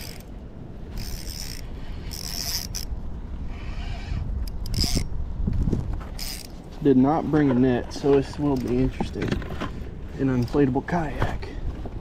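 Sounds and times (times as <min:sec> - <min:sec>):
fishing reel drag slipping: 0:00.0 - 0:00.3, 0:00.9 - 0:02.9, 0:03.5 - 0:05.1, 0:06.2 - 0:06.6.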